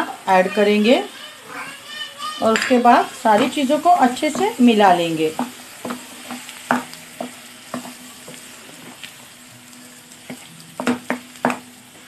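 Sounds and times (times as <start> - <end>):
frying sizzle: 0.0 - 12.0
spatula knocking pan: 2.4 - 8.4, 10.3 - 11.7.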